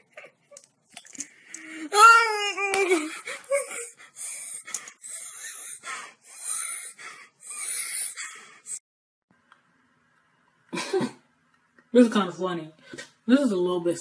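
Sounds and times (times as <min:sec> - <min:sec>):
wheezing breathy gasps: 0:03.2 - 0:08.8.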